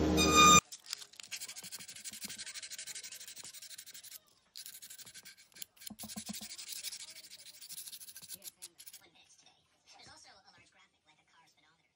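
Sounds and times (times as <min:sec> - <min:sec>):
sandpaper scratching on wood: 0:01.2 - 0:09.0.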